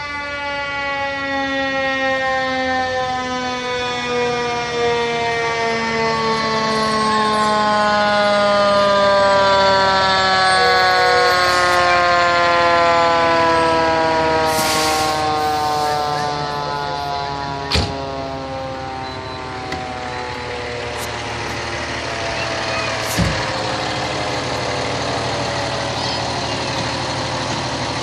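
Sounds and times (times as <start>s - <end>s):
fire engine siren winding down: 0.0s - 28.0s.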